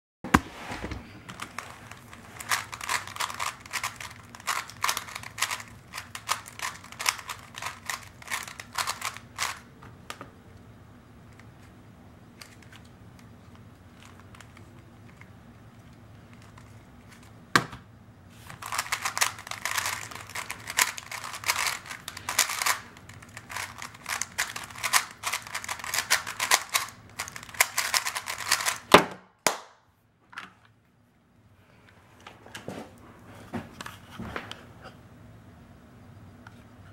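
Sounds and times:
puzzle cube clicking fast: 0:01.4 - 0:09.6, 0:18.5 - 0:28.9.

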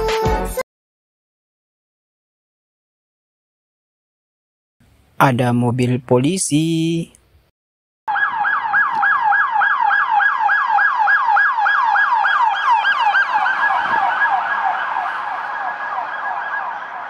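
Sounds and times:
police siren yelping: 0:08.1 - 0:17.0.

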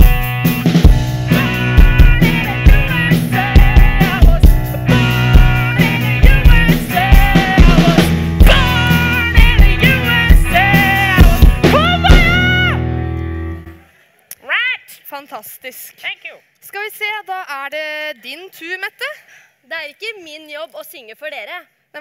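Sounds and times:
live rock band playing: 0:00.0 - 0:13.8
person singing: 0:01.0 - 0:13.1.

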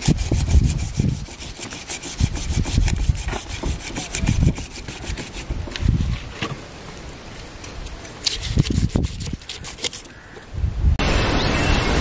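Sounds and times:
knife scraping fish scales: 0:00.0 - 0:05.5, 0:08.0 - 0:10.2.

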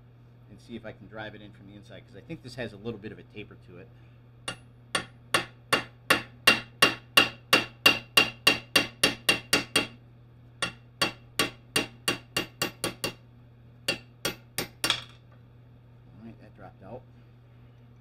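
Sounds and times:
hammer tapping metal: 0:04.5 - 0:10.0, 0:10.6 - 0:13.2, 0:13.9 - 0:15.2.

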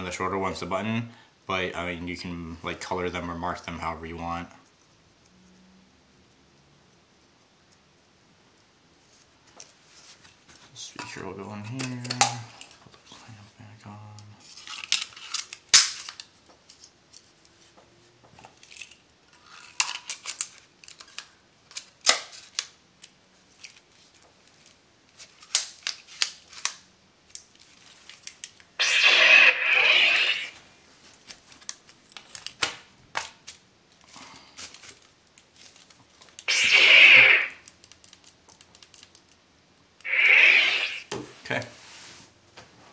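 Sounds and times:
rushing hiss: 0:28.8 - 0:30.6, 0:36.5 - 0:37.6, 0:40.1 - 0:41.1.

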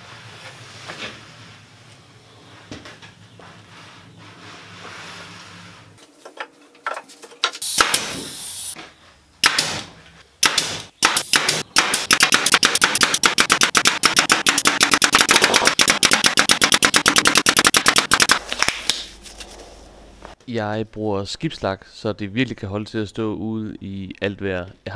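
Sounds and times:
nail gun firing into boards: 0:07.6 - 0:08.4, 0:09.4 - 0:18.4.

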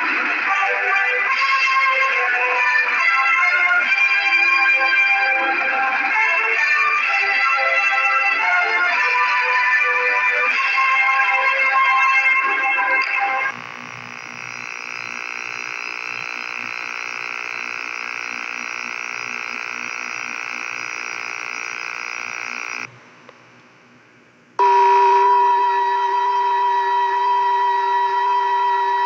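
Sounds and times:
loud pure test tone: 0:13.5 - 0:22.9, 0:24.6 - 0:29.0
electrical buzz: 0:13.5 - 0:25.2.

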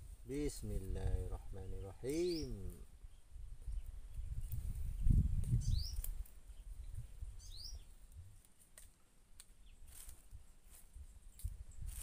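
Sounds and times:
bird chirping: 0:00.4 - 0:08.1.

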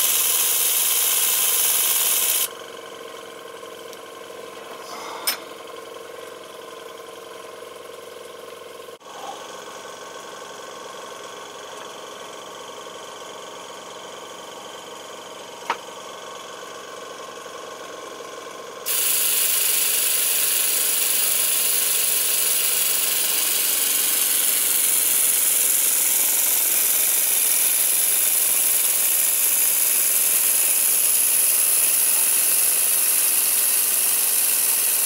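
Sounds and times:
small engine mechanical chatter: 0:00.0 - 0:16.8, 0:17.4 - 0:35.0
compressed air hissing: 0:18.9 - 0:35.0.

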